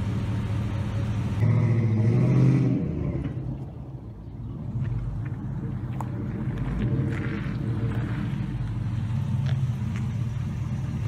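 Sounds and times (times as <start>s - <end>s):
car engine revving: 0.0s - 3.8s, 4.5s - 11.0s.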